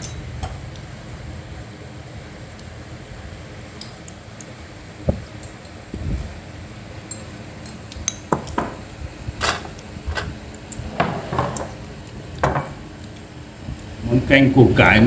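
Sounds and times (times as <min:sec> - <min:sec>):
dishes and cutlery clinking: 0:10.9 - 0:11.8.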